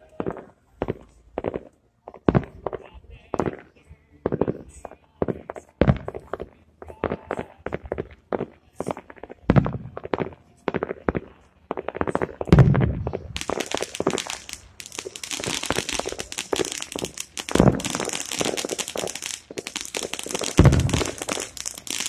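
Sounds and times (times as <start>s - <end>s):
fireworks crackling: 0.0s - 22.0s
fireworks deep booms: 8.8s - 22.0s.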